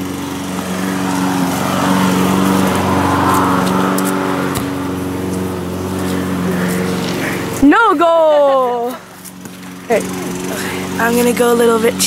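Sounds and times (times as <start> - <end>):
small engine running: 0.0 - 12.0
soccer ball kick thump: 4.5 - 4.8.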